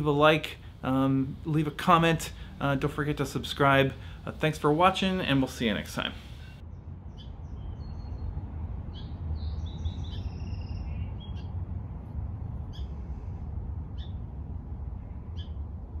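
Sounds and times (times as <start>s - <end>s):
songbirds chirping: 0.0s - 11.6s
steady low rumble: 0.0s - 16.0s.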